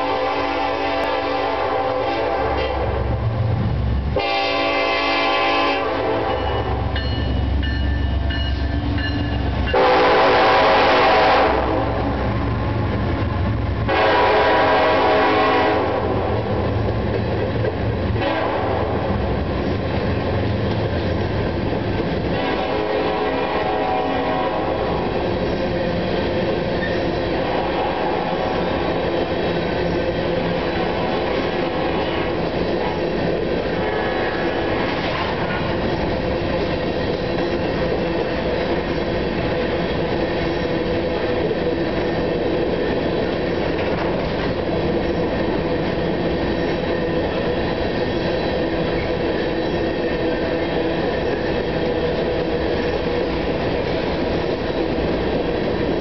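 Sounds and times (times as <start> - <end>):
rumble of train wheels: 0.0 - 56.0
clickety-clack over rail joints: 12.0 - 56.0.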